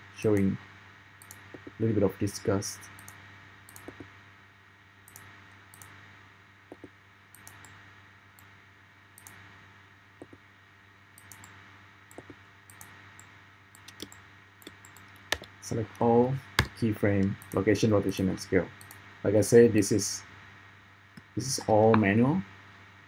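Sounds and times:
faint electrical hum: 0.0 - 23.0
mouse and keyboard clicks: 3.0 - 4.1, 13.8 - 15.5.

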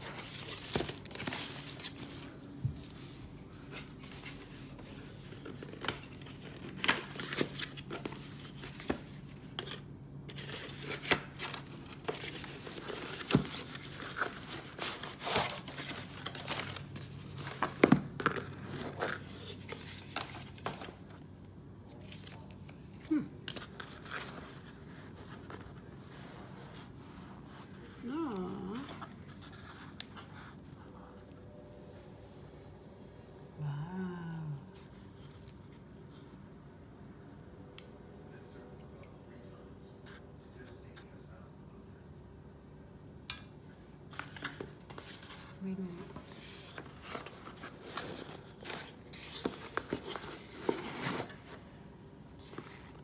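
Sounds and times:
tissue paper crinkling: 0.0 - 8.8
cardboard box being opened: 44.9 - 51.6.

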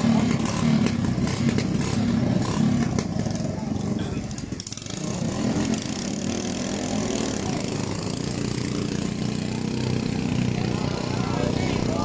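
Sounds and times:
small gasoline engines running: 0.0 - 12.0.

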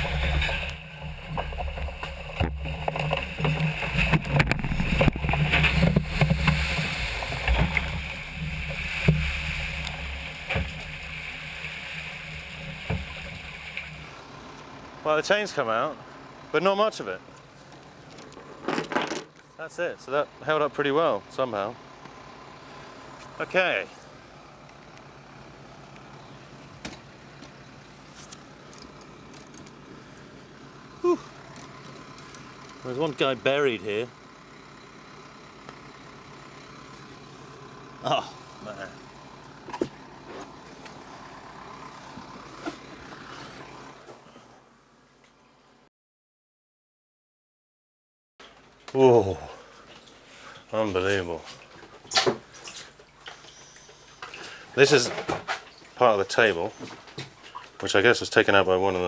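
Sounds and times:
water rushing and spraying: 0.0 - 14.2
low mechanical hum: 0.0 - 45.8
loose gear clattering and knocking: 18.1 - 19.4.

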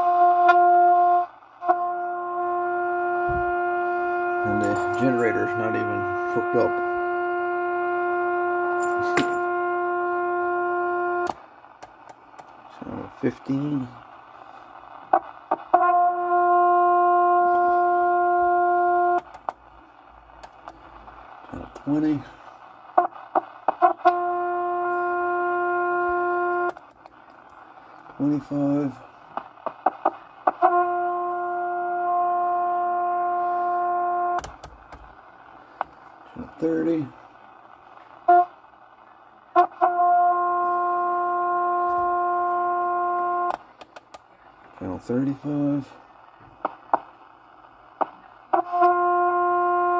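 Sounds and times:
steady test tone from radio speaker: 0.0 - 49.9
clicks: 43.5 - 44.3.

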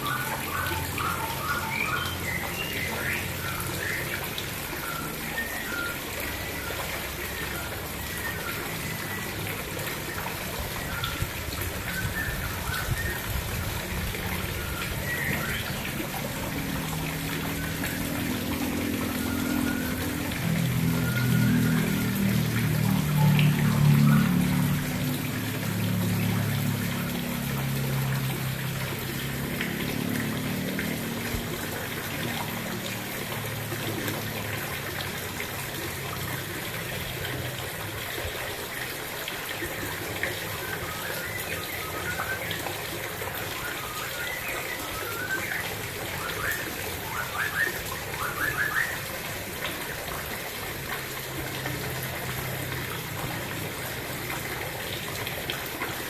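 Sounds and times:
water trickling into pond: 0.0 - 56.0.

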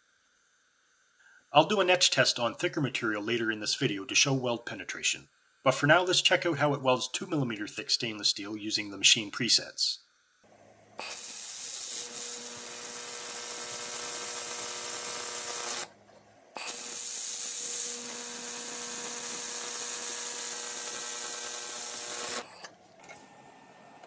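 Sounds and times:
laser welder hissing: 11.0 - 15.9, 16.6 - 22.7.

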